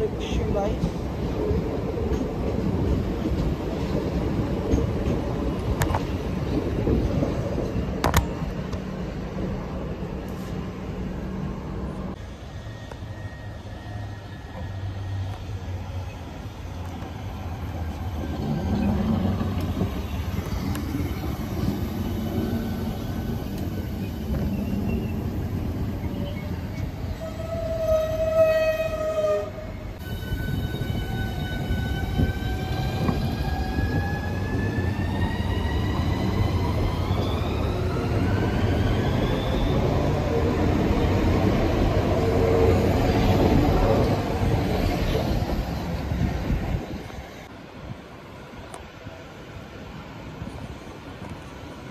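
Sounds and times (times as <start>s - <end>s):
electric train rumbling: 0.0s - 51.9s
train horn: 27.2s - 30.8s.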